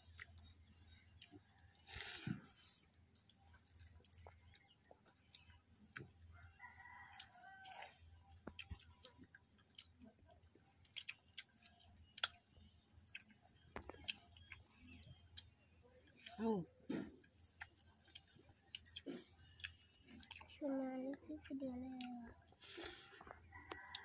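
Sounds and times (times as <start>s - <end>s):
chewing: 0.0s - 24.0s
hands eating from steel plates: 16.2s - 20.6s, 21.5s - 24.0s
distant rooster crowing: 23.4s - 24.0s.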